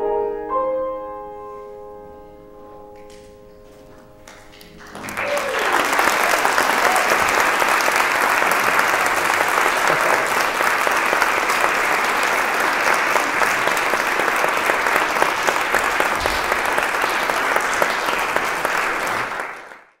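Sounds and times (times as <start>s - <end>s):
audience applauding: 4.2s - 20.0s.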